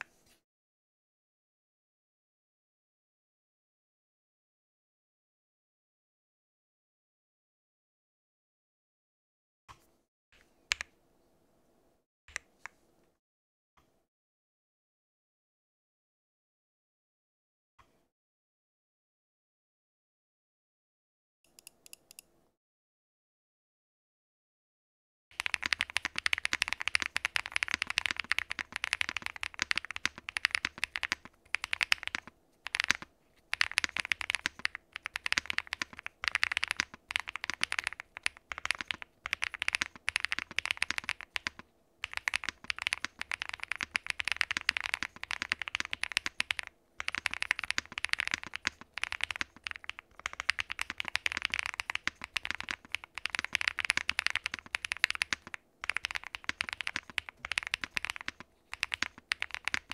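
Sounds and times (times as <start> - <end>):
mechanical keyboard typing: 25.3 - 59.9.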